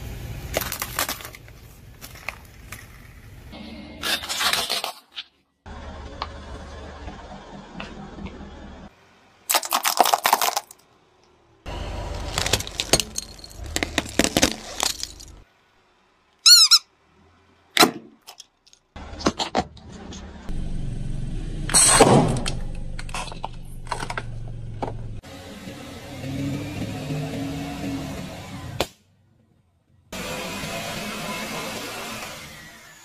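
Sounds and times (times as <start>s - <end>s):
tyre crushing plastic objects: 0.5s - 3.1s, 9.5s - 10.8s, 12.1s - 15.4s
low car rumble: 5.7s - 9.4s, 10.8s - 16.3s, 18.8s - 31.7s
high wavering squeak: 16.4s - 16.9s.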